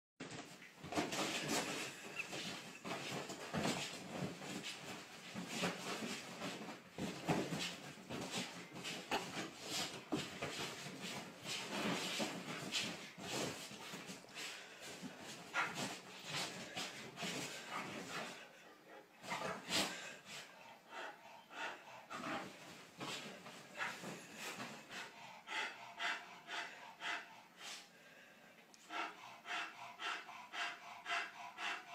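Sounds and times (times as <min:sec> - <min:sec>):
sheets and pillows rustling: 0:00.2 - 0:18.4
dog paws thudding on mattress: 0:00.3 - 0:18.4.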